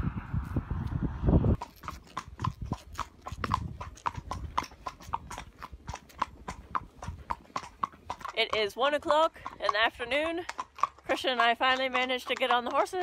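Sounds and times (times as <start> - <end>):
low rumble: 0.0 - 1.6
horse hooves clip-clopping on road: 1.5 - 13.0.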